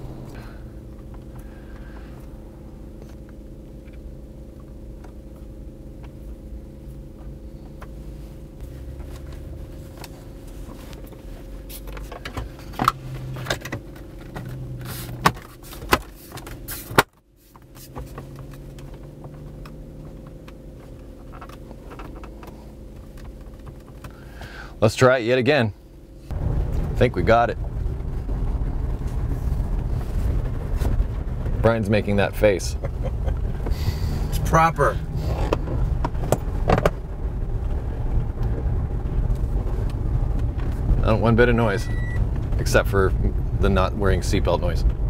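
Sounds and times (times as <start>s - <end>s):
low hum inside car: 0.0s - 45.0s.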